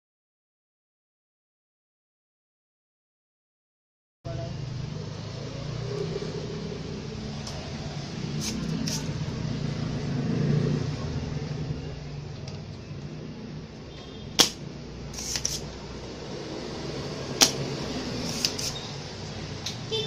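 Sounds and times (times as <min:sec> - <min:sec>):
desoldering pump snapping: 0:14.3 - 0:15.8.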